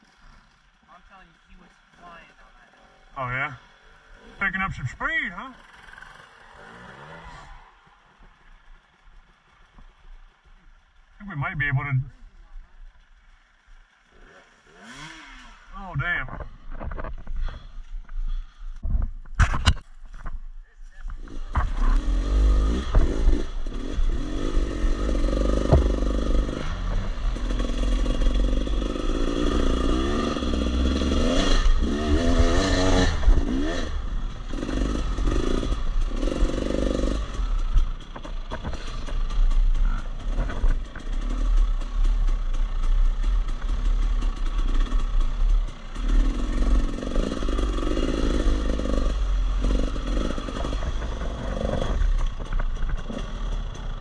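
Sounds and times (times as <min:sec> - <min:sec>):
dirt bike engine revving: 0:02.7 - 0:08.2, 0:13.9 - 0:16.6, 0:21.2 - 0:54.0.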